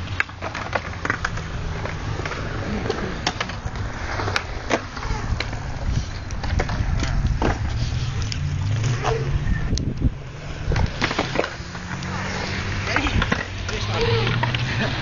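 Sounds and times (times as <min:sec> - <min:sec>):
sharp clicks and knocks from bikes: 0:00.0 - 0:10.1, 0:10.7 - 0:12.2, 0:12.8 - 0:14.9
bike tyres rumbling on concrete: 0:00.0 - 0:15.0.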